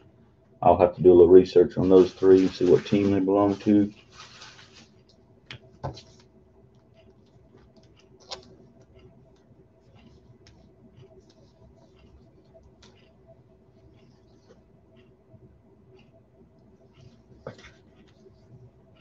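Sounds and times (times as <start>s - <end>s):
trading cards clicking and rustling: 1.8s - 4.8s.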